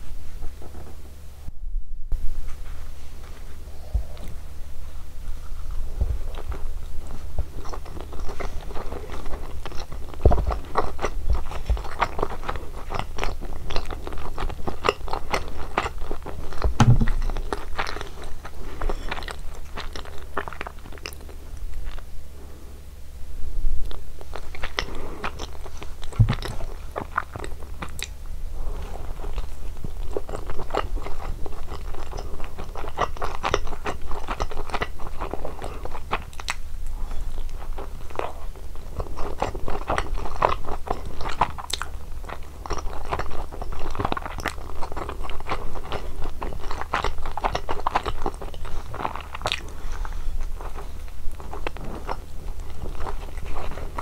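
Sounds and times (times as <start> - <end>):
low hum: 0.0 - 9.0, 16.0 - 20.2
pizza crust crunching: 5.7 - 22.0, 24.3 - 54.0.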